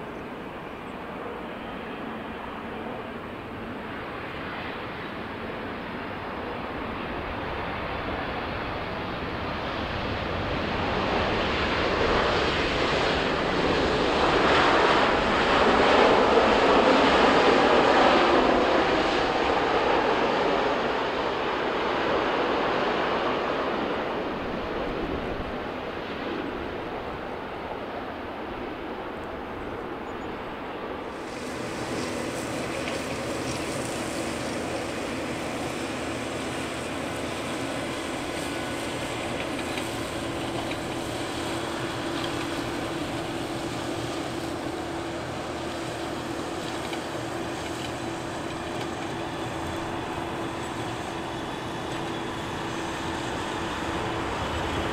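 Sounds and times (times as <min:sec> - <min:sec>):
jet engine drone: 0:00.0 - 0:54.9
jet engine rumble: 0:00.0 - 0:54.9.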